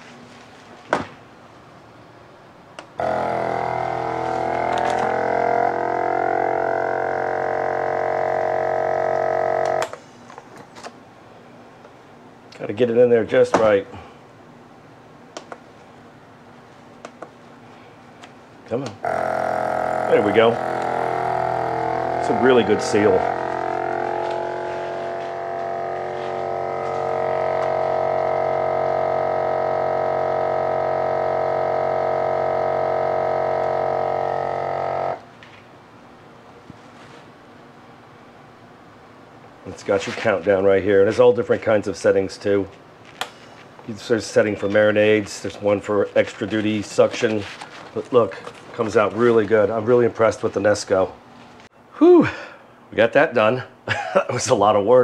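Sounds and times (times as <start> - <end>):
vacuum sealer pump humming: 3.0 - 10.4, 18.7 - 35.3.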